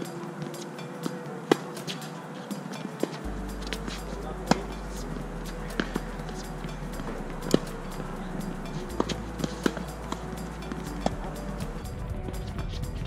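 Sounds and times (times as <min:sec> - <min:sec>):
quiet background music: 0:00.0 - 0:13.0
tennis ball bouncing on hard court: 0:04.5 - 0:04.7, 0:09.0 - 0:11.3
tennis ball struck by rackets: 0:04.5 - 0:04.7, 0:09.0 - 0:10.9.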